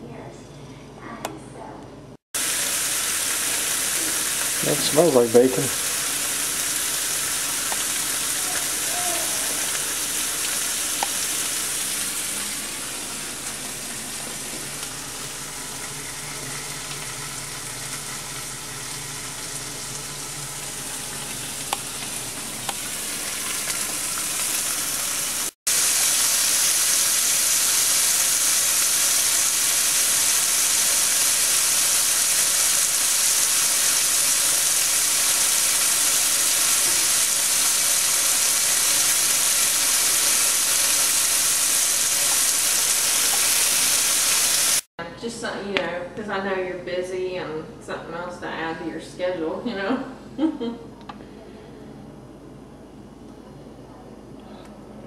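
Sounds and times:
bacon sizzling in a frying pan: 2.4 - 44.9.

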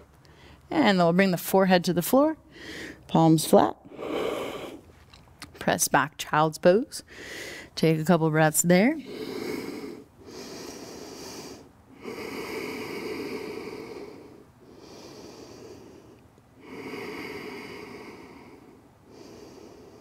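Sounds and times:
woman breathing deeply: 2.5 - 3.0, 3.9 - 4.8, 7.1 - 7.8, 9.0 - 20.0.

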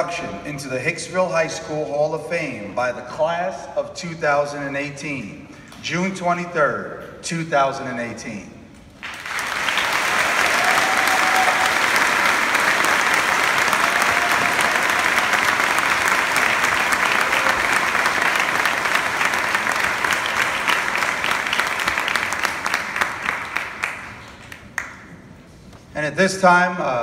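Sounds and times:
audience applauding: 9.0 - 25.0.

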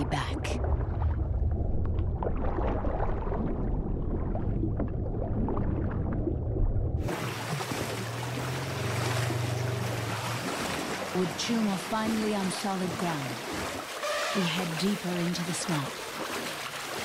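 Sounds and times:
muffled underwater rumble: 0.0 - 12.0
elephants splashing through water: 7.0 - 17.0.

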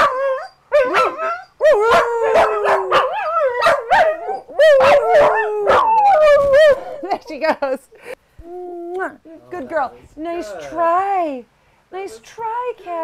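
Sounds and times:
dogs howling: 0.0 - 7.1
dogs yipping: 0.0 - 7.1.

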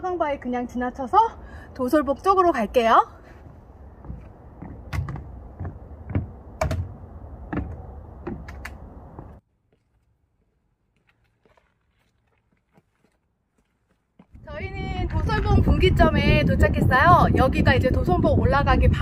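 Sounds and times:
footsteps on rocky trail: 3.2 - 15.8.

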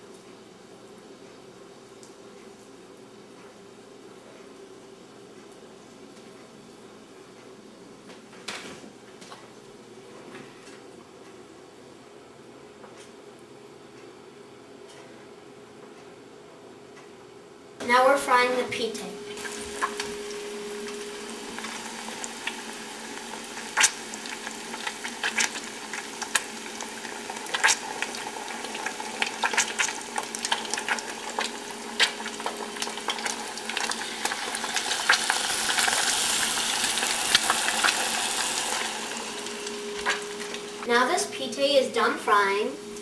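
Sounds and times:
balls deep-frying in hot oil: 18.4 - 43.0.

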